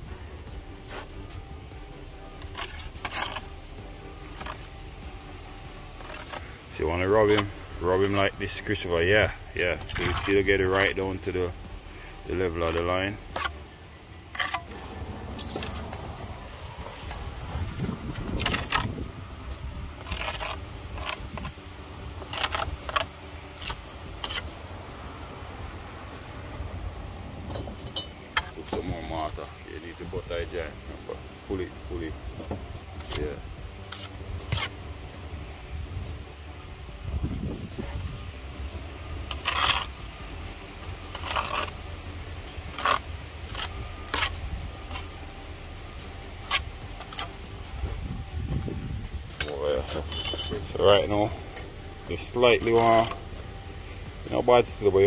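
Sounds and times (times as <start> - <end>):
steady low rumble: 0.0 - 55.0
trowel scraping bricks: 2.2 - 4.9, 5.7 - 13.7, 14.3 - 21.6, 22.2 - 24.6, 32.9 - 34.8, 39.2 - 40.0, 41.1 - 41.9, 42.5 - 45.2, 46.3 - 48.7, 49.4 - 53.3
trowel clinking against bricks: 49.4 - 51.6.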